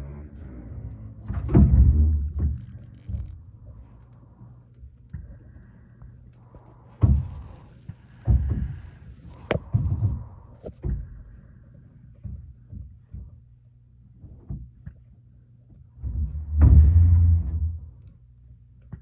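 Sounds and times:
dull thumps: 1.0 - 4.0, 6.5 - 11.4, 16.0 - 18.0.

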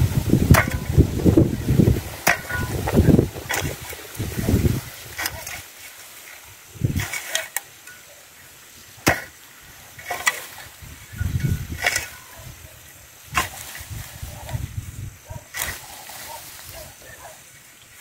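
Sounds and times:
weeds rustling and scraping: 0.0 - 18.0
hoe striking soil: 0.2 - 5.8, 6.8 - 8.1, 8.9 - 12.5, 13.3 - 14.0, 15.5 - 16.6.

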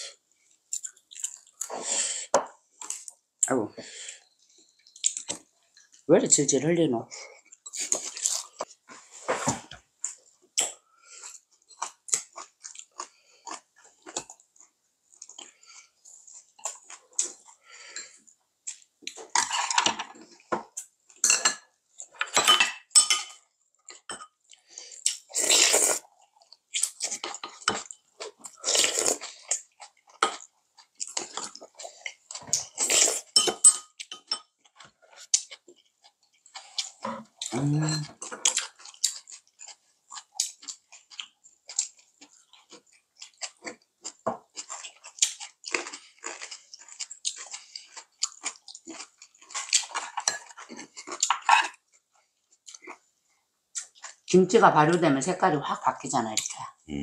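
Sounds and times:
chopsticks clattering on bowls: 21.2 - 23.4, 33.4 - 34.5
crunchy chewing: 38.2 - 53.0.

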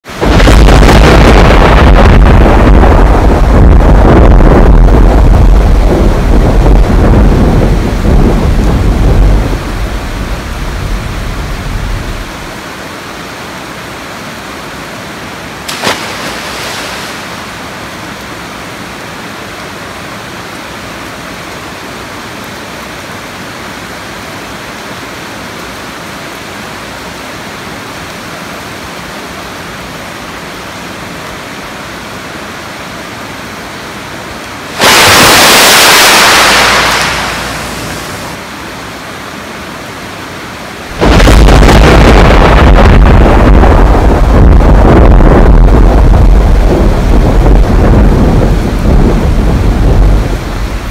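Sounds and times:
steady rain: 0.0 - 50.9
rolling thunder: 0.2 - 12.5, 34.8 - 38.4, 40.9 - 50.9
sharp thunder crack: 0.2 - 12.5, 34.8 - 38.4, 40.9 - 50.9.

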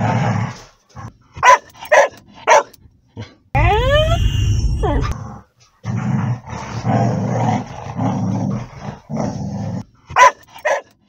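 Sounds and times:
dog barking sharply: 1.4 - 2.7, 10.2 - 10.9
dogs growling: 5.0 - 10.2.

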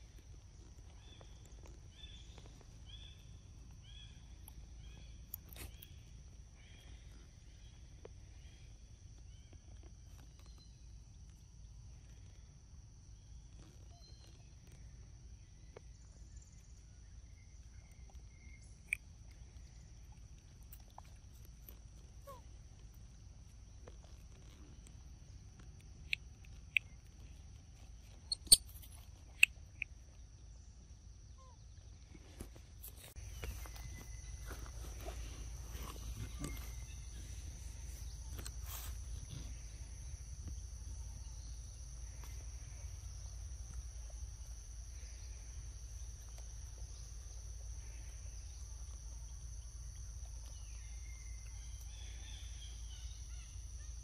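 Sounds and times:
high insect drone: 0.0 - 54.0
sharp clicks: 28.3 - 29.9.

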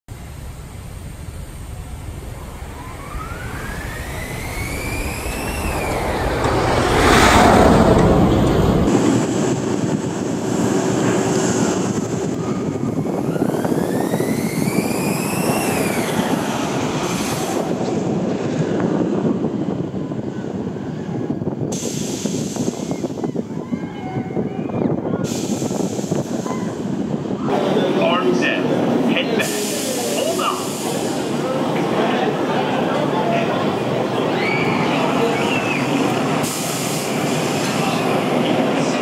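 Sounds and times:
roller coaster train rushing past: 0.1 - 39.0
hydraulic launch winch whining: 3.2 - 6.7.

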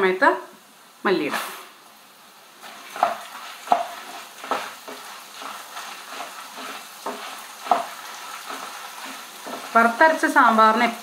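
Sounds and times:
light sizzle: 0.0 - 11.0
spatula scraping a pan: 2.6 - 10.2.

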